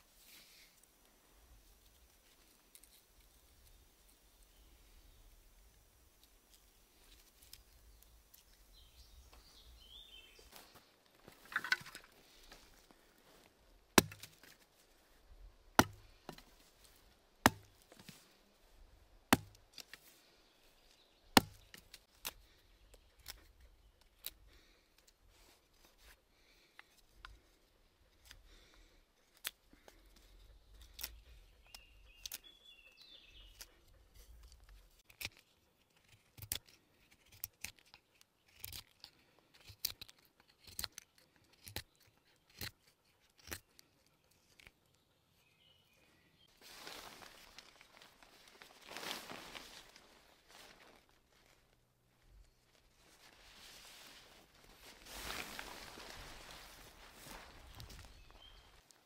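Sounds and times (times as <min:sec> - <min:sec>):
axe chopping wood: 0:14.0 - 0:14.5, 0:15.8 - 0:16.4, 0:17.4 - 0:17.8, 0:19.3 - 0:19.6, 0:21.4 - 0:21.7.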